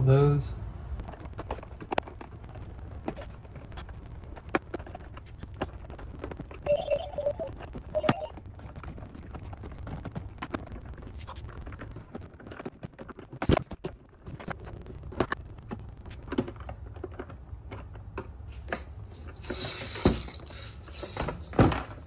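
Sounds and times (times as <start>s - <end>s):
plastic toy scraping: 18.6s - 22.0s.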